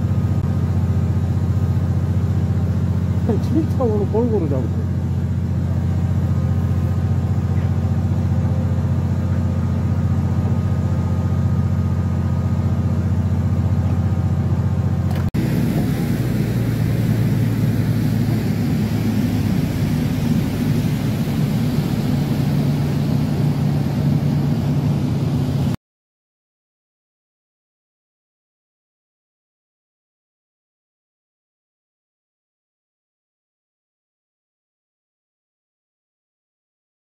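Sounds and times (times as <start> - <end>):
boat engine running: 0.0 - 25.8.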